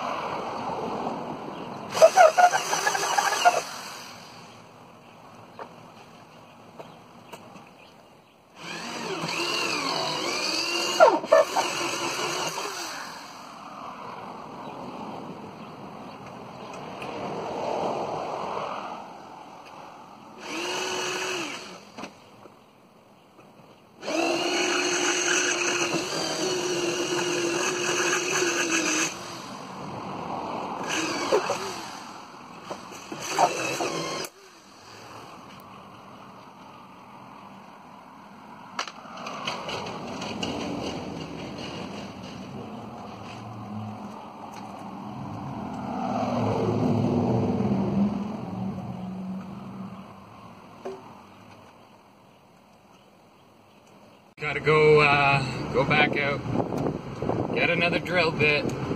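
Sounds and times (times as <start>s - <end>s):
power drill running: 1.9s - 4.5s, 8.6s - 13.6s, 20.4s - 22.0s, 24.0s - 29.8s, 30.8s - 35.5s.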